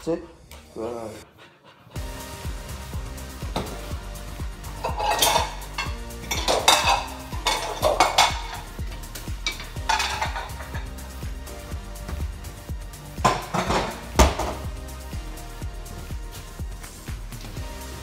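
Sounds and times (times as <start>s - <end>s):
background music with steady beat: 0.0s - 18.0s
dishes and silverware clattering: 4.8s - 8.8s, 9.4s - 11.0s, 13.2s - 14.6s.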